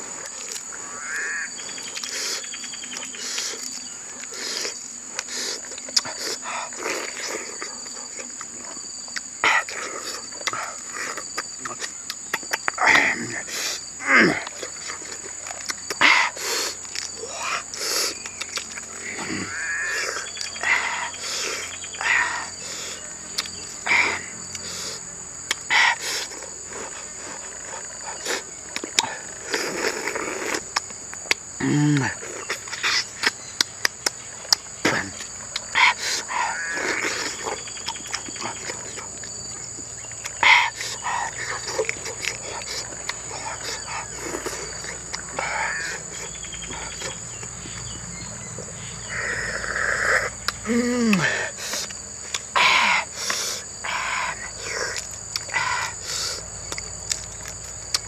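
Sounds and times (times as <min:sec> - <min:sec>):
insect buzz: 0:00.0 - 0:58.0
person chewing and lip-smacking: 0:01.8 - 0:12.9, 0:14.4 - 0:18.9, 0:23.3 - 0:23.8, 0:24.4 - 0:48.5, 0:50.3 - 0:58.0
person making mm noises: 0:31.6 - 0:33.4, 0:49.1 - 0:56.5.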